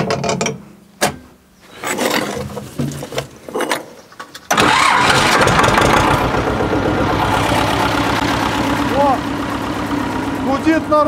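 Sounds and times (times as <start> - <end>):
diesel tractor engine starting: 4.5 - 11.0.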